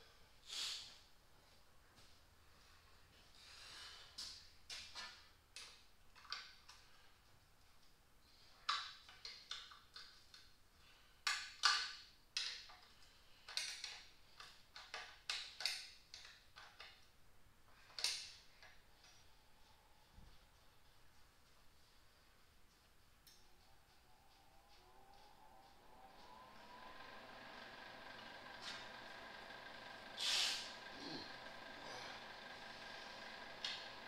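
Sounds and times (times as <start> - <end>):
clicks and clinks of tools: 11.2 - 17.1, 17.9 - 19.3.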